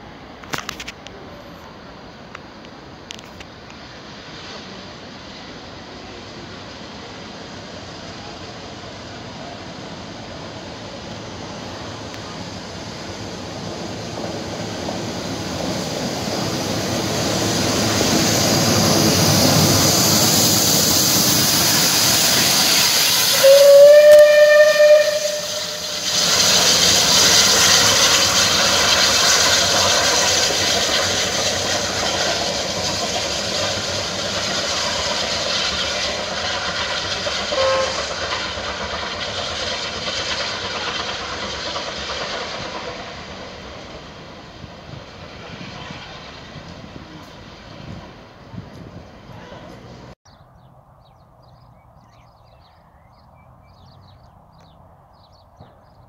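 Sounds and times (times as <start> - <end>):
steam locomotive passing: 0.0 - 50.2
steam hiss: 1.2 - 50.2
steam whistle blast: 23.2 - 26.2, 37.5 - 38.2.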